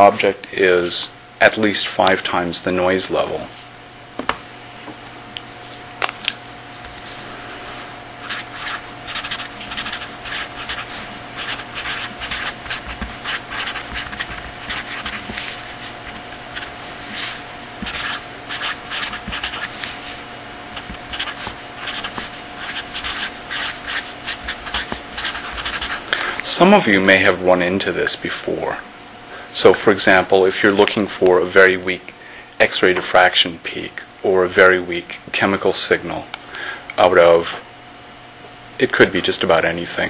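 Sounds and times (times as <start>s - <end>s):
steady electrical hum: 0.0s - 40.0s
pen scratching on writing surface: 8.2s - 19.9s, 20.8s - 26.0s.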